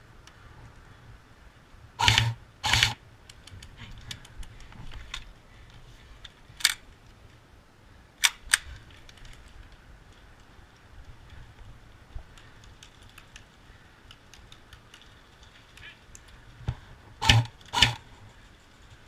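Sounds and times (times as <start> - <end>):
airsoft rifle bursts: 2.0 - 3.0, 17.2 - 18.0
sharp single cracks: 2.0 - 3.0, 17.2 - 18.0.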